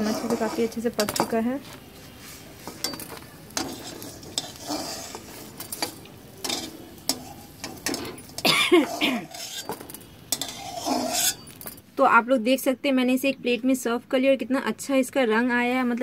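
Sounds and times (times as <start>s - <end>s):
steel spatula scraping a pan: 0.0s - 1.4s, 2.1s - 11.8s
oil sizzling: 0.0s - 11.9s.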